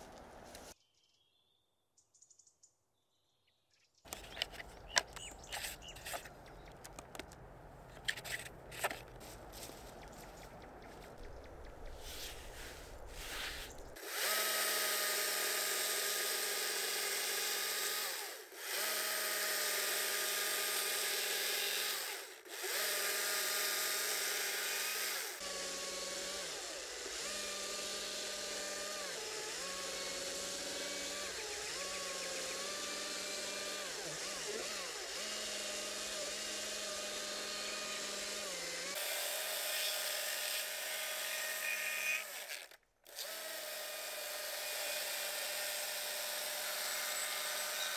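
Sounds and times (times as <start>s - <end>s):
electric chainsaw whining: 14.0s - 47.9s.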